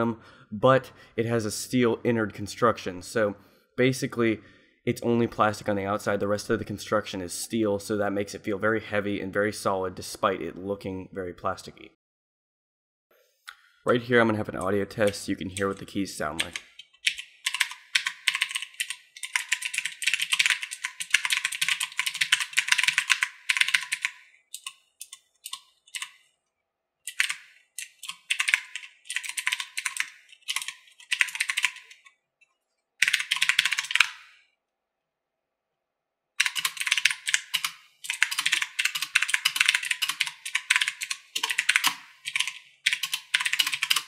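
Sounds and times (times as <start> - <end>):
mechanical keyboard typing: 15.0 - 26.2, 27.1 - 32.1, 33.0 - 34.3, 36.4 - 44.0.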